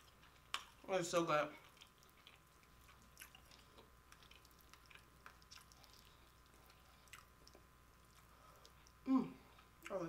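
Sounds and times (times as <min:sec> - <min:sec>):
wet chewing clicks: 0:01.6 - 0:09.0.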